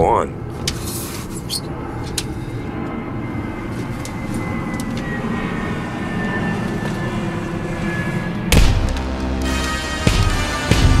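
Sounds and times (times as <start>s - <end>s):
faint high whine: 1.2s - 8.6s.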